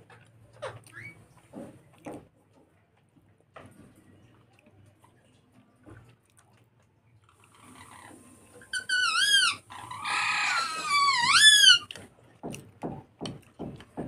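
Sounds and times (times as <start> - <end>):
animal high whining call: 8.8 - 11.9.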